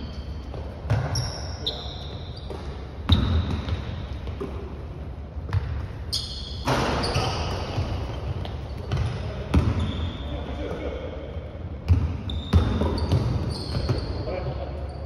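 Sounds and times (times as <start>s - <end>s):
sneakers squeaking: 0.0s - 15.0s
basketball bouncing on wooden floor: 11.9s - 13.9s.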